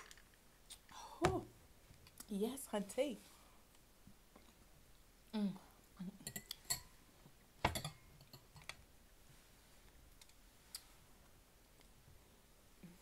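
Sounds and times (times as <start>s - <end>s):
tableware clicking: 7.7s - 8.8s.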